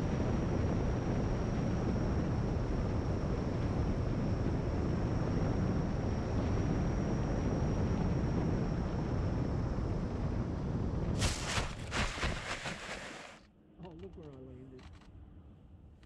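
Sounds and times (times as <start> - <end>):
faint high whine: 0.0 - 16.0.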